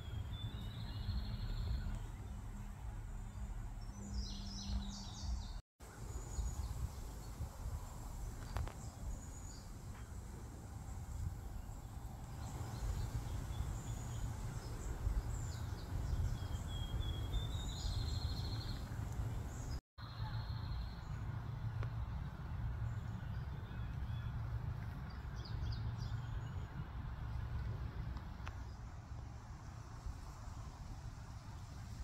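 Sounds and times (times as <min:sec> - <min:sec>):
birds chirping: 0:00.0 - 0:07.3, 0:11.6 - 0:21.1.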